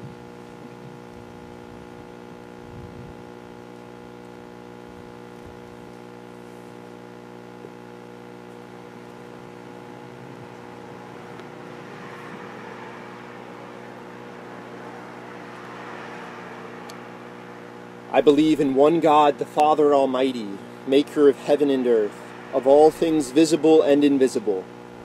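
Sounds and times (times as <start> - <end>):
steady multi-tone hum: 0.0 - 25.0
rushing noise: 10.4 - 24.3.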